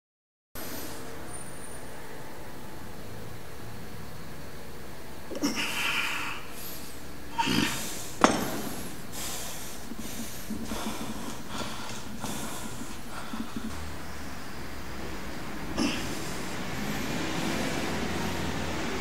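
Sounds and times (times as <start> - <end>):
man breathing hard: 5.4 - 14.0, 15.7 - 18.9.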